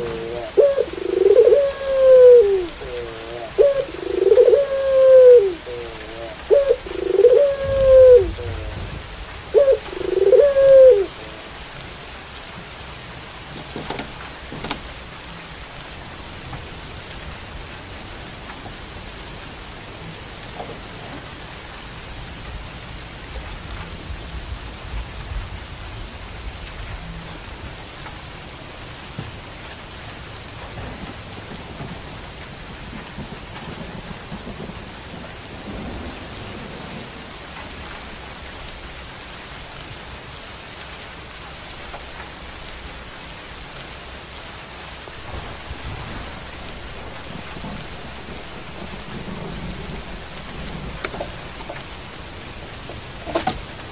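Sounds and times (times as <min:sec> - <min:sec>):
dove cooing: 0:00.0 - 0:11.5, 0:45.1 - 0:53.9
steady rain: 0:00.0 - 0:53.9
sharp clicks: 0:13.5 - 0:14.9.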